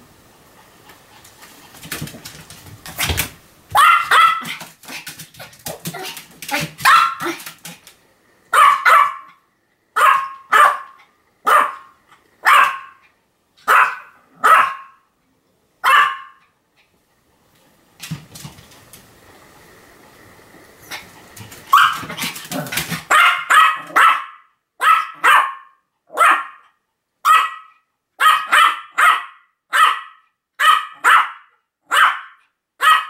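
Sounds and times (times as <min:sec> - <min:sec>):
small dog barking: 0:03.7 - 0:04.7, 0:05.9 - 0:07.5, 0:08.5 - 0:09.4, 0:10.0 - 0:13.0, 0:13.6 - 0:15.0, 0:15.8 - 0:16.4, 0:21.7 - 0:33.0.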